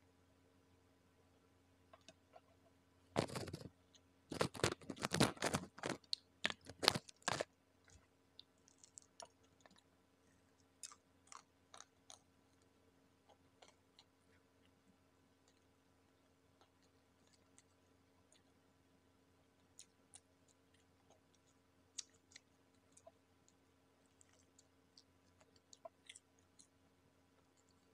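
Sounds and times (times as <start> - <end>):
crunching and chewing crispy food: 3.2 - 9.9, 10.6 - 12.7, 16.6 - 18.6, 19.5 - 26.8.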